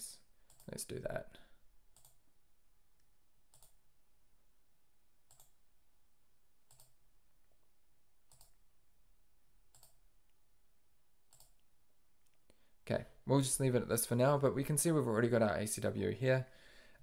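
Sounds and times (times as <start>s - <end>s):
computer mouse clicks: 0.4s - 0.8s, 1.9s - 2.2s, 3.0s - 3.8s, 5.3s - 5.6s, 6.6s - 7.0s, 8.3s - 8.6s, 9.7s - 10.0s, 11.3s - 12.6s.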